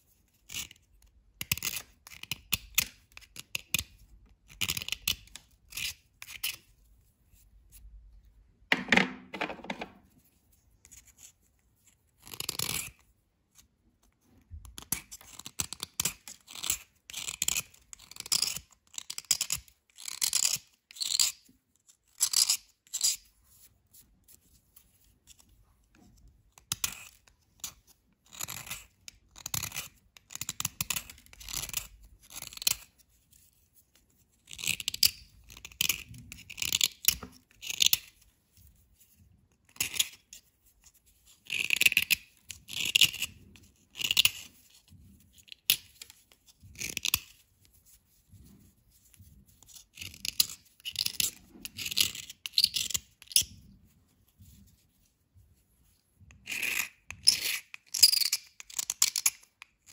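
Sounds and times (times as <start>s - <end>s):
knife scraping a bar: 0.2s - 7.9s, 10.2s - 14.2s, 14.8s - 25.5s, 26.1s - 53.7s, 55.8s - 59.9s.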